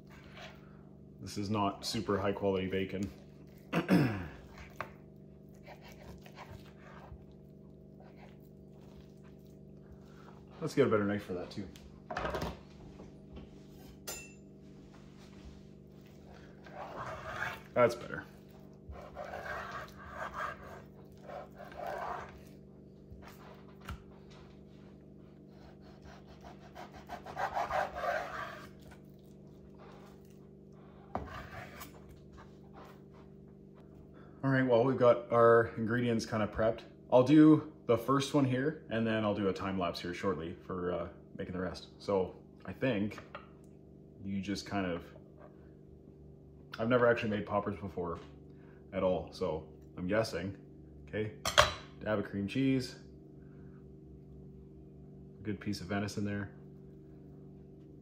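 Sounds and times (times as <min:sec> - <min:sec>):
steady low hum: 0:00.0 - 0:58.0
knife sawing through bacon: 0:05.4 - 0:07.3, 0:16.1 - 0:23.8, 0:25.4 - 0:29.1.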